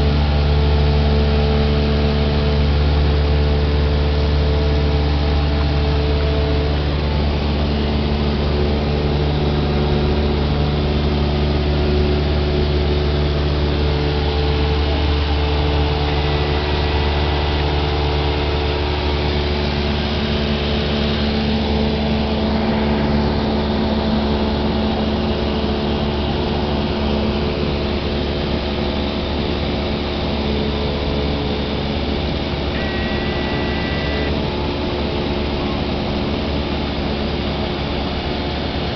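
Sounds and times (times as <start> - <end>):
propeller aircraft cabin drone: 0.0 - 38.9
brief high tones: 32.8 - 34.4.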